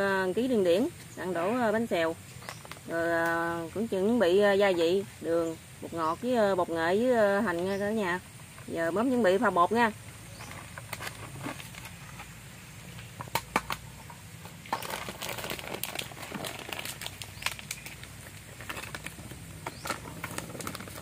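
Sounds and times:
plastic packet crinkling: 0:14.7 - 0:21.0.

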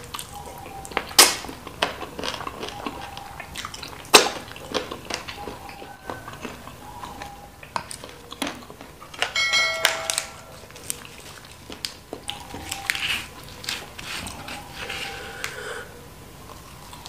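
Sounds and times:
lettuce tearing and rustling: 0:00.0 - 0:09.4, 0:10.1 - 0:15.7
squeaky ringing burst: 0:09.4 - 0:10.7.

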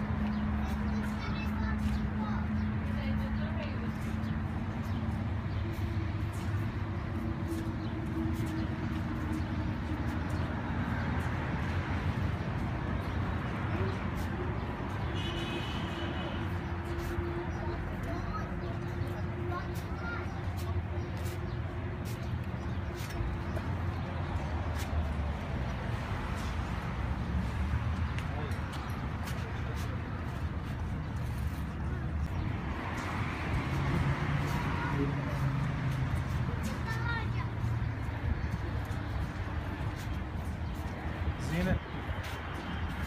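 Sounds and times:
walking footsteps: 0:00.0 - 0:43.0
faint background voices: 0:27.8 - 0:43.0.

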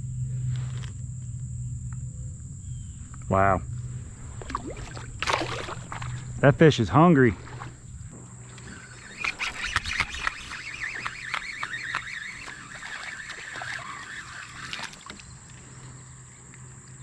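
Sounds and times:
man talking: 0:03.3 - 0:03.7, 0:06.4 - 0:07.5
fishing reel grinding and squeaking: 0:07.2 - 0:15.5
fishing reel clicks: 0:08.5 - 0:15.1.

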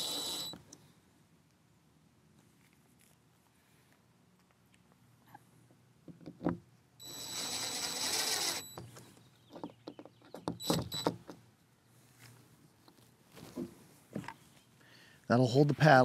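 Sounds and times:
power driver whining: 0:00.0 - 0:00.8, 0:07.0 - 0:09.1, 0:10.5 - 0:11.2
handling clicks and knocks: 0:08.7 - 0:11.4.

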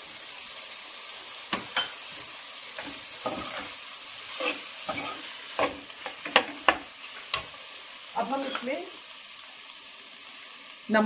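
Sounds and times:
oil sizzling: 0:00.0 - 0:11.0
metal spoon scraping a metal pan: 0:02.8 - 0:07.5.

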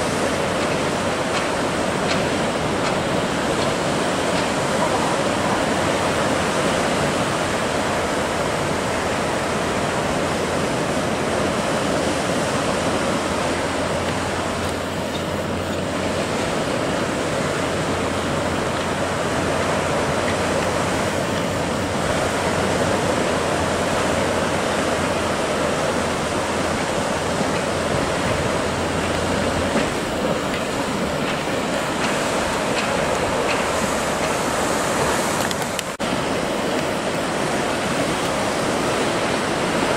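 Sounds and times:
surf breaking: 0:00.0 - 0:39.9.

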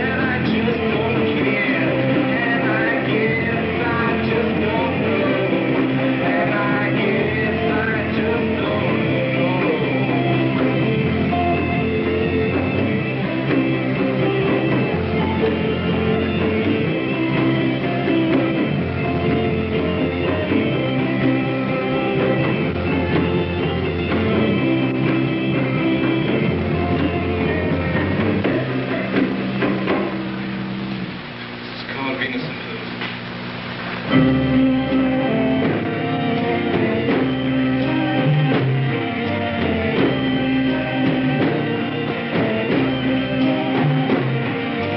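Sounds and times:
bass notes: 0:00.0 - 0:44.9
electric guitar: 0:00.0 - 0:44.9
sustained droning tones: 0:00.0 - 0:44.9.

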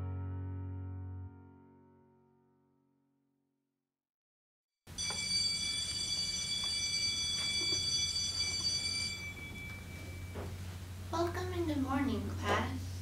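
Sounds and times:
electric school bell ringing: 0:04.9 - 0:10.8
steady low hum: 0:04.9 - 0:13.0.

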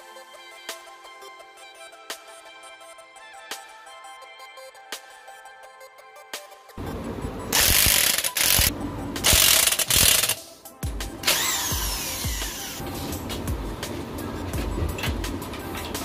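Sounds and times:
impact wrench bursts: 0:07.5 - 0:10.4, 0:11.2 - 0:12.8.

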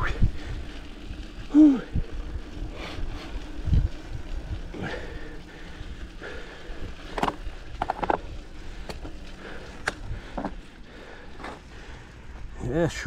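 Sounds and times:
wind rumble on microphone: 0:00.0 - 0:09.3, 0:09.9 - 0:10.6
bike clicks and rattles: 0:00.0 - 0:13.0.

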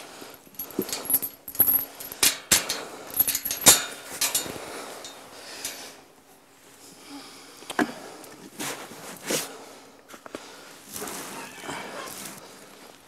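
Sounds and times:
metal gate latch clinking: 0:00.6 - 0:05.8.

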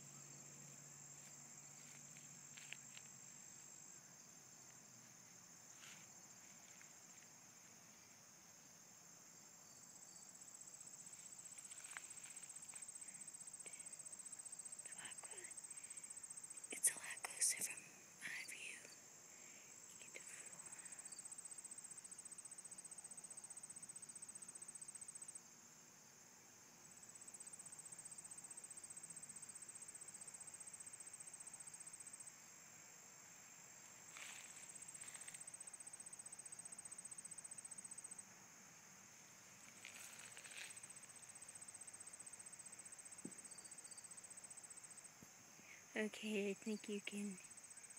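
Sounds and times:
high-pitched insect trill: 0:00.0 - 0:47.9
soft rustles: 0:34.1 - 0:35.6, 0:39.6 - 0:41.2.

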